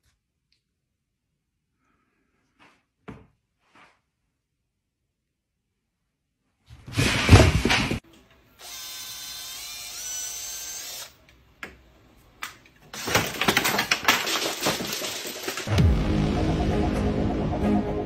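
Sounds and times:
cordless drill whining: 0:08.6 - 0:11.2.

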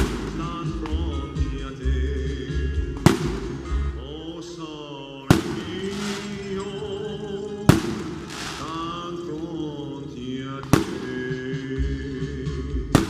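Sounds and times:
firework shells bursting: 0:00.0 - 0:01.6, 0:02.8 - 0:04.0, 0:05.3 - 0:11.8
music: 0:00.0 - 0:04.7, 0:05.3 - 0:13.0.

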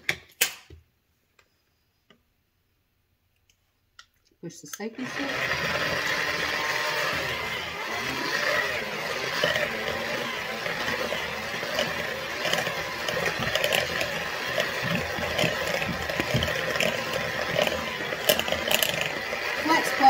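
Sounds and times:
electric hand mixer whirring: 0:04.9 - 0:20.0.

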